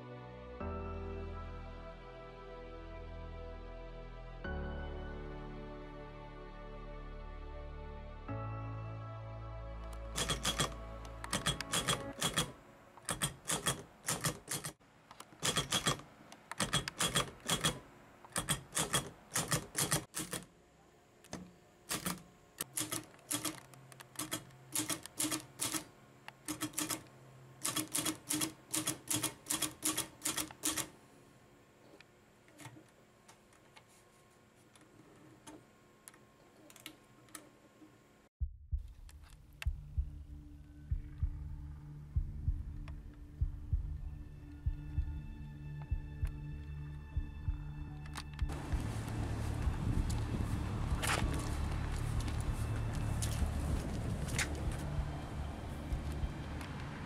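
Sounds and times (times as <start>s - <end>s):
typewriter keystroke clicks: 10.2s - 14.8s, 15.4s - 17.8s, 21.3s - 25.9s, 26.5s - 30.9s.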